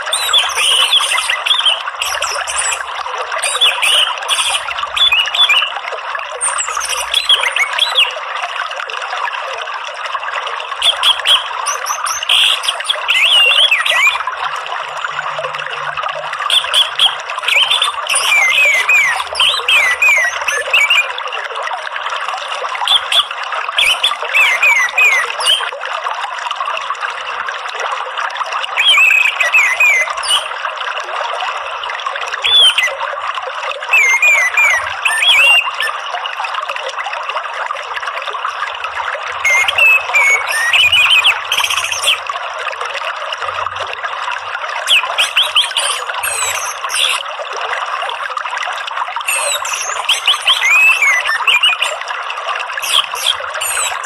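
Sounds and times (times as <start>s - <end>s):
thrush twittering song: 0.0s - 8.2s, 10.8s - 15.4s, 16.3s - 21.4s, 22.8s - 25.7s, 28.8s - 30.5s, 33.8s - 36.0s, 39.4s - 42.3s, 44.8s - 47.3s, 49.2s - 52.1s, 52.7s - 54.0s
running water: 0.0s - 54.0s.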